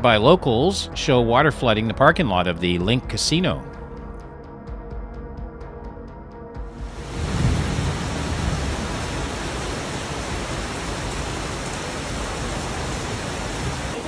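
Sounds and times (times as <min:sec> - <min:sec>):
floodwater rushing: 0:06.9 - 0:14.0.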